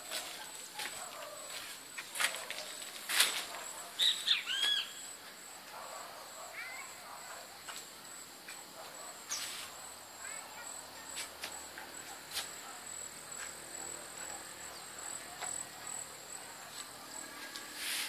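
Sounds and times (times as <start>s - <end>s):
insects pulsing trill: 0.0s - 18.0s.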